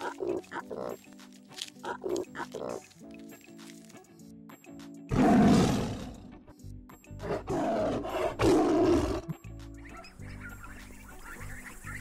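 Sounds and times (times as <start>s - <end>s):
background music: 0.0s - 12.0s
rough animal calls: 1.7s - 2.9s.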